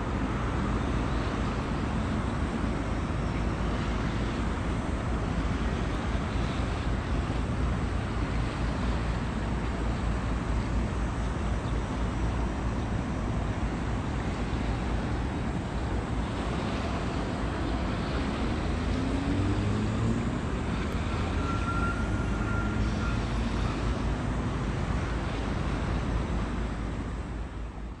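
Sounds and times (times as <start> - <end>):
water: 0.0 - 28.0
faint engine rising in pitch: 18.2 - 24.0.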